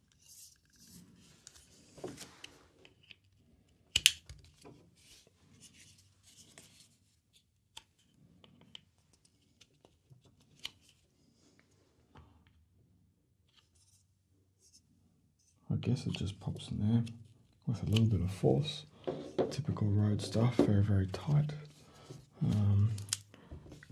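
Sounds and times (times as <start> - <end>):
plastic parts clicking: 3.9 - 4.6, 22.9 - 23.9.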